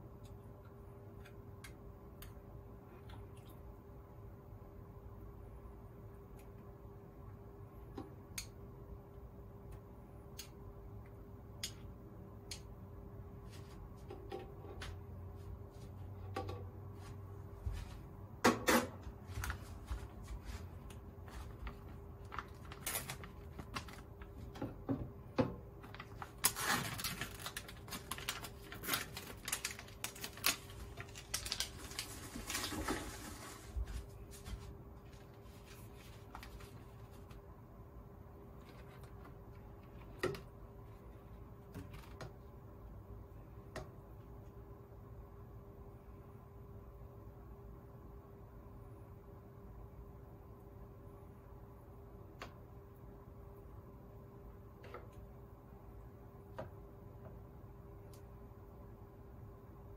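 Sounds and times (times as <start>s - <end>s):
faint hum: 0.0s - 59.9s
plastic packaging crinkling: 21.4s - 24.5s, 25.8s - 34.0s.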